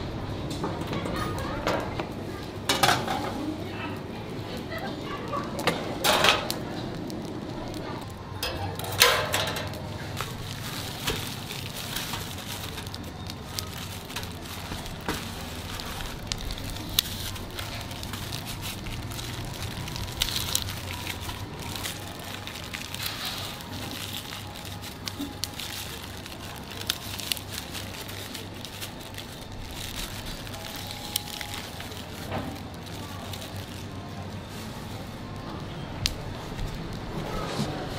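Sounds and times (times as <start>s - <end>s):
coarse salt crackling and crunching: 2.7s - 37.9s
steel tongs clanking on tray: 8.4s - 9.9s.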